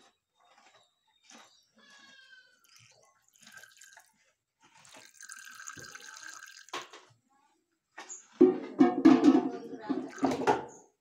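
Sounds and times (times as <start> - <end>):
milk trickling into shell: 2.1 - 6.9.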